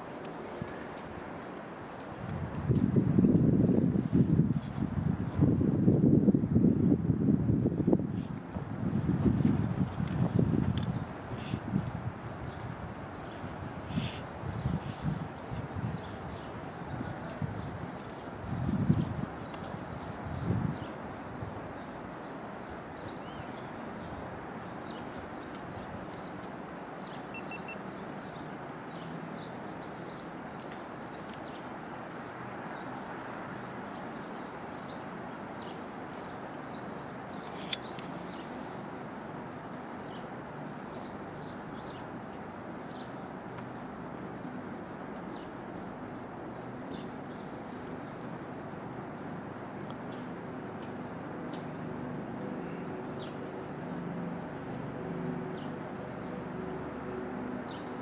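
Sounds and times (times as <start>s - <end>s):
high bird chirps: 27.3s - 27.8s.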